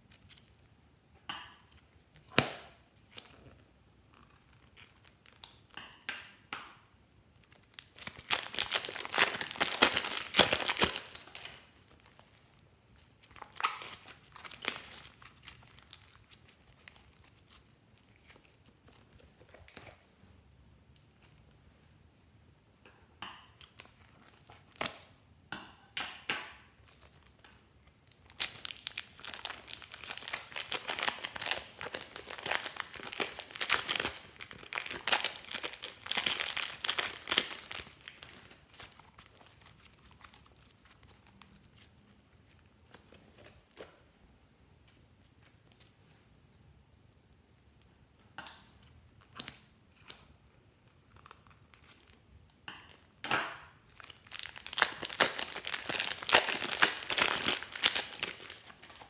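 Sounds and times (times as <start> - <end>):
plastic bags crinkling: 7.4 - 19.8, 28.0 - 43.9, 53.9 - 59.0.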